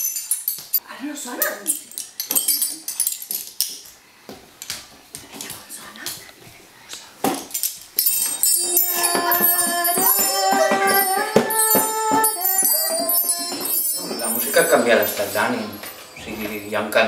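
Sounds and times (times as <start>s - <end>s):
bar chimes ringing: 8.0s - 17.0s.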